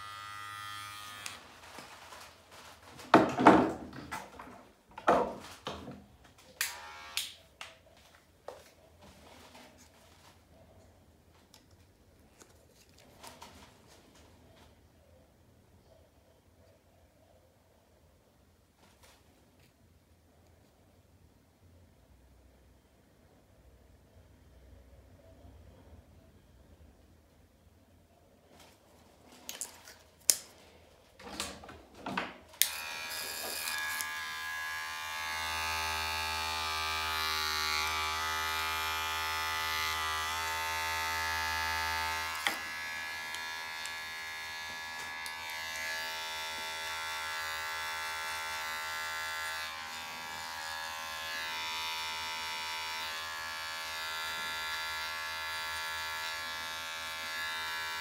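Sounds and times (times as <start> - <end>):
hair clipper buzzing: 0.0 - 1.4, 6.6 - 7.4, 32.6 - 58.0.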